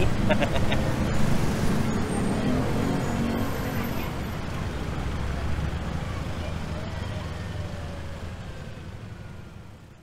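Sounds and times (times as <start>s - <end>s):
city traffic: 0.0s - 10.0s
vehicle engine and road rumble: 0.0s - 10.0s.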